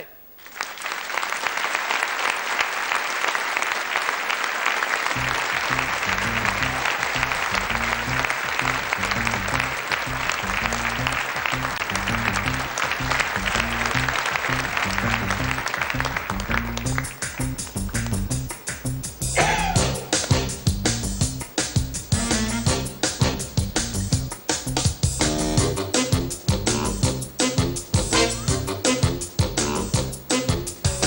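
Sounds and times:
audience applauding: 0.4 - 20.5
music with repeating bass line: 5.2 - 31.0.

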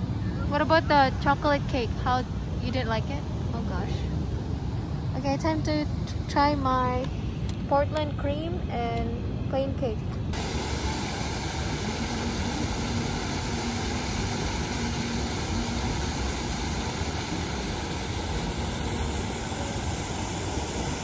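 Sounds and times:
fountain water splashing: 10.4 - 21.0.

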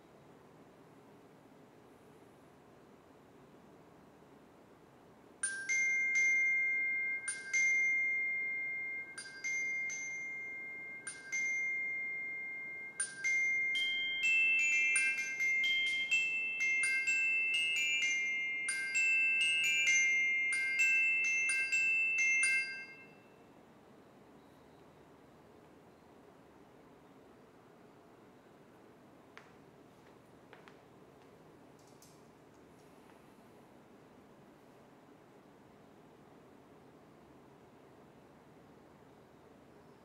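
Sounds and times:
glockenspiel notes: 5.4 - 23.3.

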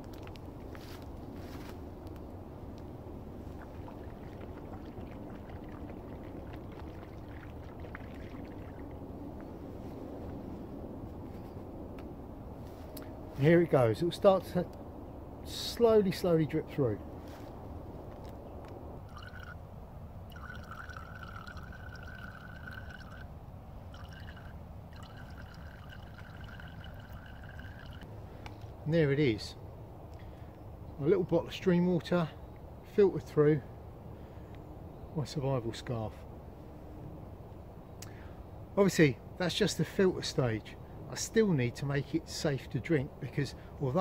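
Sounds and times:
low background rumble: 0.0 - 44.0
water pouring and splashing: 3.4 - 9.2, 19.1 - 19.6, 20.3 - 23.3, 23.9 - 28.1.

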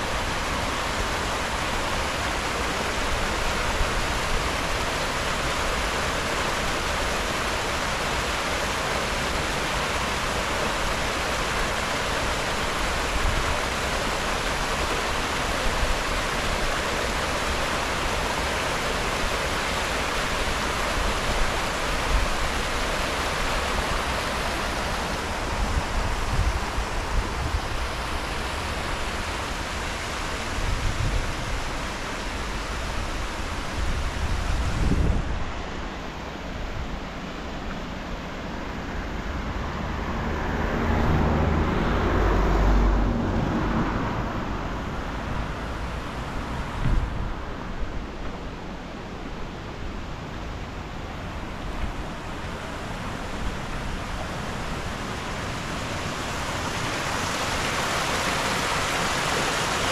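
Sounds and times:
water rushing over rapids: 0.0 - 59.9.

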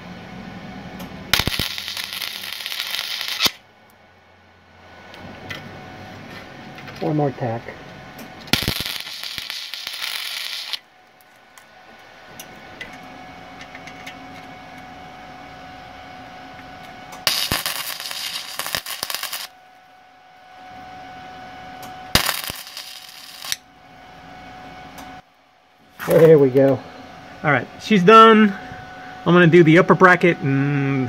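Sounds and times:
steady hum: 0.0 - 31.0
welding arc bursts: 1.3 - 3.6, 8.5 - 10.9, 17.2 - 19.6, 22.1 - 23.6.

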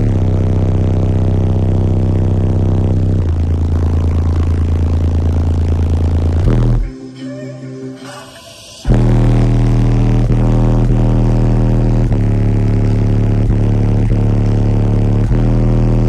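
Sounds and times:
deep bass from subwoofers: 0.0 - 7.0, 8.9 - 16.0.

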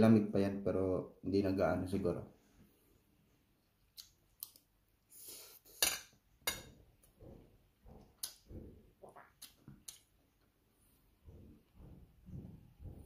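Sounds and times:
cutlery clinking on a plate: 5.8 - 6.8
chewing: 8.0 - 10.5.

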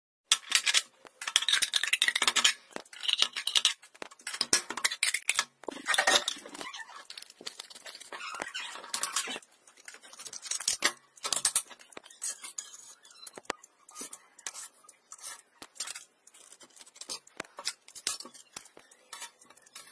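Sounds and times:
scissors cutting metal can: 0.3 - 8.1
can metal crinkling and clinking: 0.3 - 12.6.

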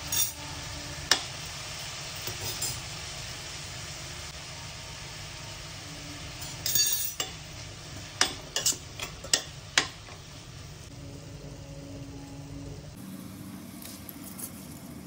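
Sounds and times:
steady low hum: 4.0 - 15.0
metal spatula clinking pot: 6.4 - 7.4, 8.2 - 10.0.

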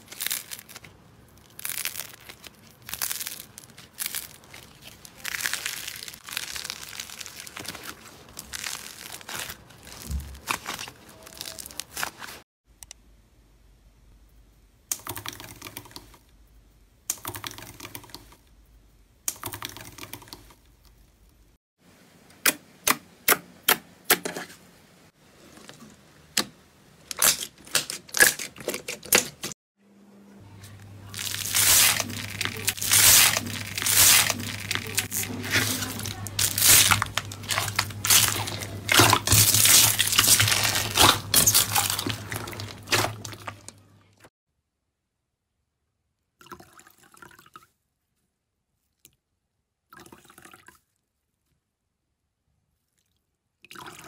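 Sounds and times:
foil crinkling under masher: 0.0 - 12.4, 31.1 - 43.7
slime crackling and popping: 0.0 - 12.4, 31.1 - 43.6
low steady hum: 12.7 - 14.9.

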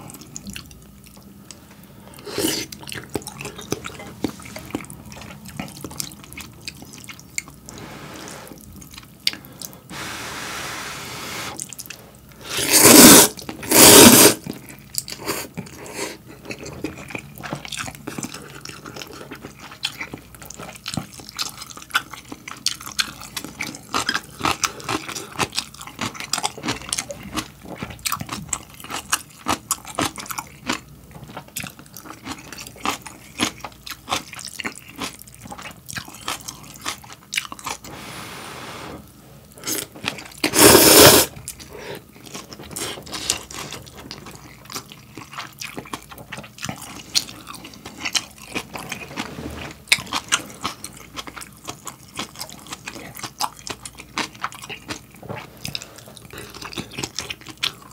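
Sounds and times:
wet chewing and crunching: 0.0 - 1.6, 2.2 - 7.8, 8.6 - 9.8, 13.3 - 37.9, 39.4 - 40.5, 41.3 - 57.9
loud noodle slurp: 12.4 - 14.4, 39.6 - 41.4.

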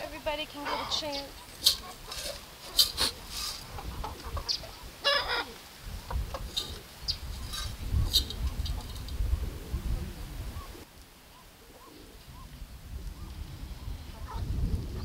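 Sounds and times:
chickens clucking: 0.4 - 10.9, 11.7 - 12.5, 13.2 - 15.0
chicken squawk: 0.6 - 6.8.

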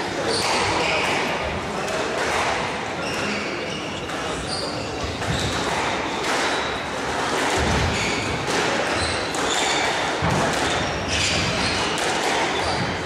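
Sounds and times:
squash ball struck by rackets: 0.4 - 2.7, 5.0 - 13.0.

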